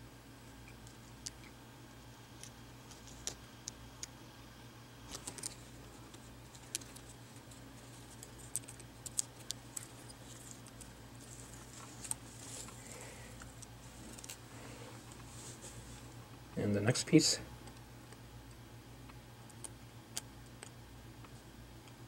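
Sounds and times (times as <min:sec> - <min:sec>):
steady low hum: 0:00.0 - 0:22.0
soft rustling of backing paper: 0:05.0 - 0:16.2.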